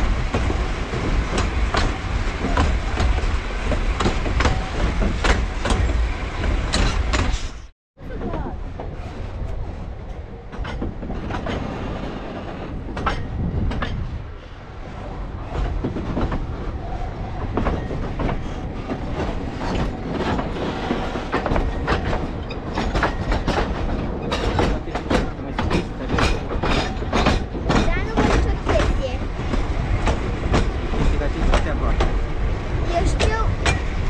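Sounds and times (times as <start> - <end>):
carriages knocking: 0.0 - 7.5, 17.5 - 34.0
train wheels clattering over rails: 0.0 - 14.6, 15.4 - 34.0.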